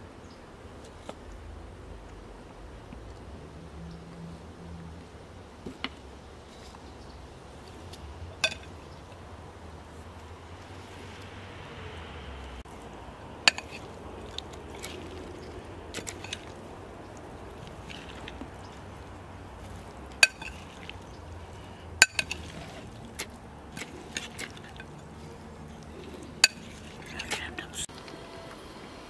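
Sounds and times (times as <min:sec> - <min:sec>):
spoon clinking against glass bowl: 0:20.2 - 0:20.8, 0:22.0 - 0:22.5.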